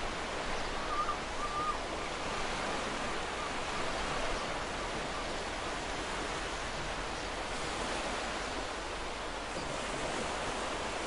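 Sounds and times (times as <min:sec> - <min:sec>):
ocean surf on beach: 0:00.0 - 0:11.0
faint wavering bird call: 0:00.6 - 0:01.8.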